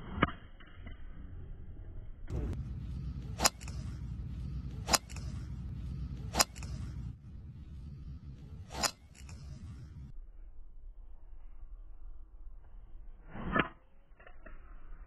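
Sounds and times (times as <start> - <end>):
low rumble: 0.8 - 15.0
golf club striking ball: 3.1 - 7.1.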